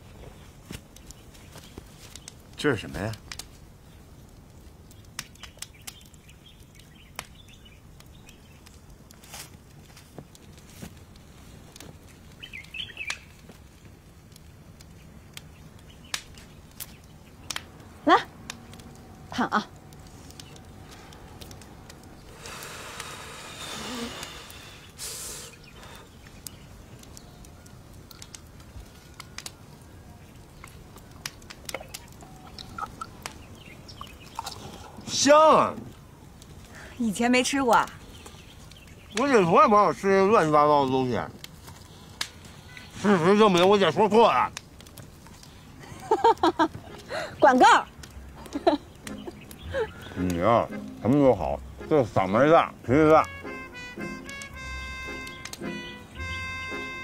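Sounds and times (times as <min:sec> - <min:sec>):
bird chirp: 0:04.9 - 0:08.7, 0:12.4 - 0:13.4, 0:31.7 - 0:35.1, 0:47.3 - 0:51.9, 0:53.4 - 0:57.0
chewing: 0:30.5 - 0:35.0, 0:41.4 - 0:42.9.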